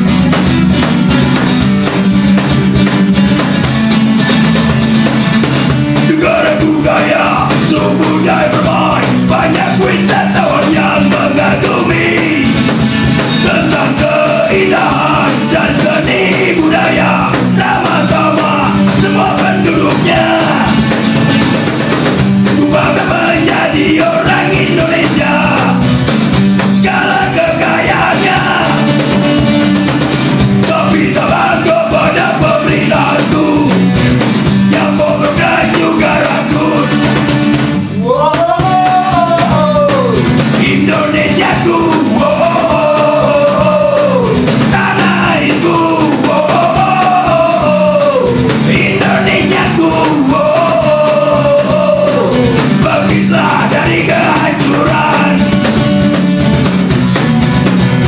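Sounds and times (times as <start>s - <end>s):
strummed acoustic guitars: 0.0s - 38.0s, 38.6s - 58.0s
cajon: 0.0s - 58.0s
man singing loudly: 6.0s - 12.7s, 13.4s - 20.9s, 22.4s - 25.9s, 26.7s - 29.1s, 30.6s - 33.9s, 34.7s - 37.1s, 38.0s - 55.7s.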